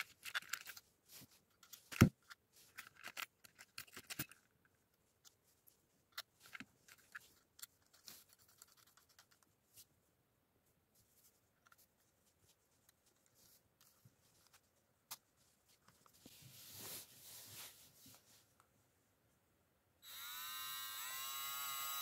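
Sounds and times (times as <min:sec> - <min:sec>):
small parts clicking and tapping: 0:00.0 - 0:00.8, 0:01.5 - 0:05.4, 0:06.1 - 0:09.5.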